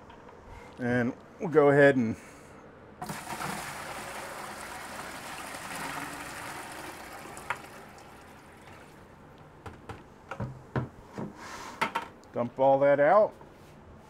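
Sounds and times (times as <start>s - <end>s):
water splashing in plastic bucket: 3.0s - 8.8s.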